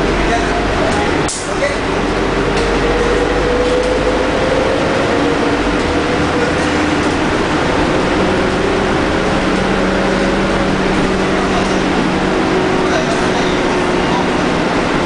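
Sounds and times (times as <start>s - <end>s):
bus engine droning: 0.0s - 15.0s
road noise: 0.0s - 15.0s
whining tones: 1.9s - 14.7s.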